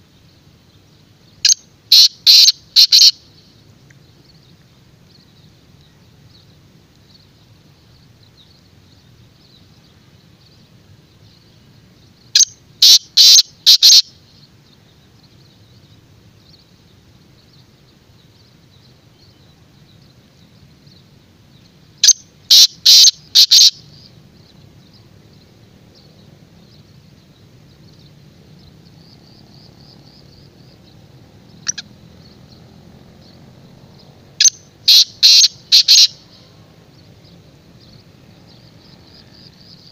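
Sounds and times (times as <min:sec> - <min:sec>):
bird calling sharp notes: 0:01.4 - 0:03.2, 0:12.4 - 0:14.1, 0:22.0 - 0:24.0, 0:31.6 - 0:31.9, 0:34.4 - 0:36.5.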